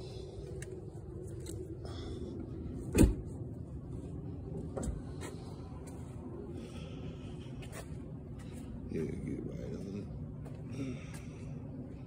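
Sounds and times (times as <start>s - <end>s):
truck door shutting thump: 2.9s - 3.3s.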